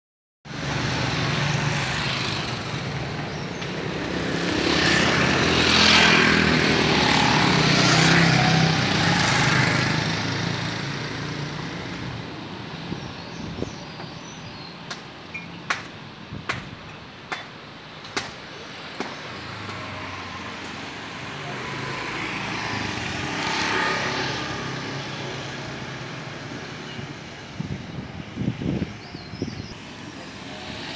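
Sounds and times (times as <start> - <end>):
vehicles passing close: 0.5 - 30.9.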